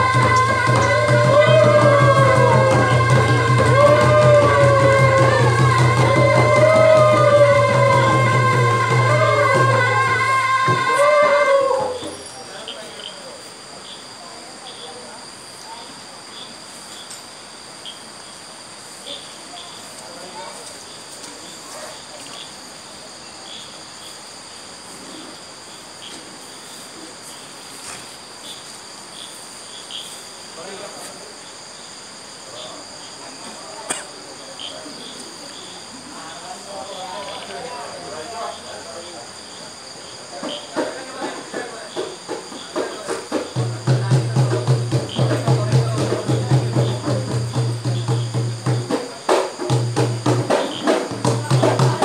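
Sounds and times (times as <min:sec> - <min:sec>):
quick steady drumbeat: 0:00.0 - 0:12.0, 0:40.6 - 0:52.0
sung chant: 0:00.0 - 0:13.4
crickets trilling: 0:00.0 - 0:52.0.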